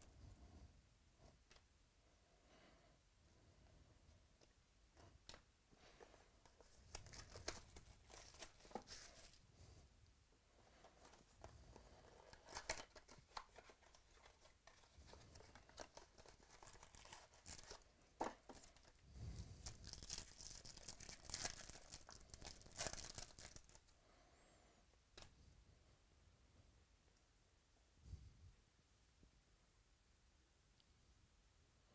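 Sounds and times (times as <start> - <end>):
cards rustling: 5.2 - 9.4, 10.7 - 23.9
wrapper tearing and crinkling: 6.9 - 9.4, 12.3 - 19.0, 19.6 - 23.8.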